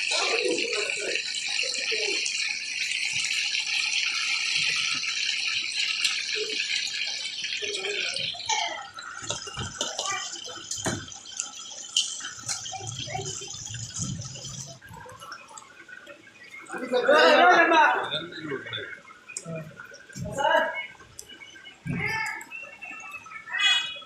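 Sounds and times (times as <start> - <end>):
chicken sizzling in hot oil: 0.0 - 15.6.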